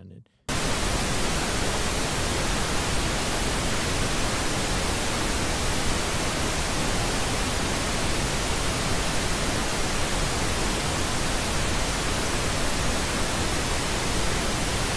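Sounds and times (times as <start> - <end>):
television static hiss: 0.5 - 14.9.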